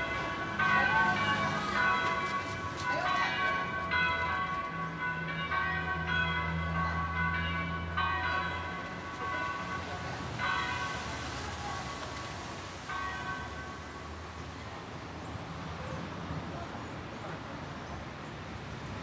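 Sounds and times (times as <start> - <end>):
church bells ringing: 0.0 - 14.9.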